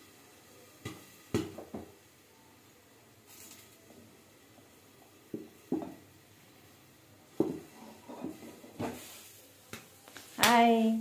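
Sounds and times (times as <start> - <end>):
muffled popcorn popping: 0.7 - 2.1, 3.2 - 6.2, 7.3 - 10.8.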